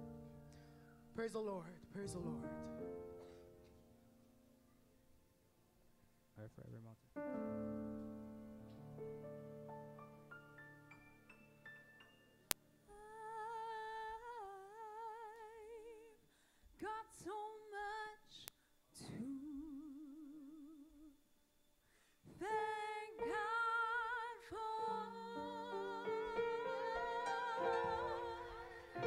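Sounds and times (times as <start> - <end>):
piano chords: 0.0 - 4.5, 7.2 - 12.8, 22.4 - 29.0
person singing gospel-style: 22.3 - 29.0.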